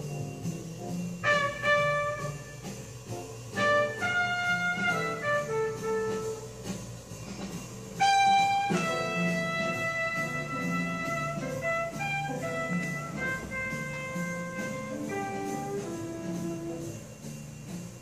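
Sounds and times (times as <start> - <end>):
jazz horn long notes: 0.0 - 6.9, 8.0 - 17.4
bass line: 8.0 - 17.6.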